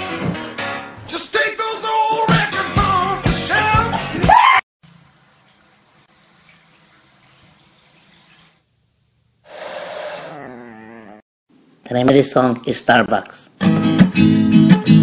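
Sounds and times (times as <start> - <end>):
music with singing: 1.1 - 4.3
bathtub tap running water: 4.8 - 8.8.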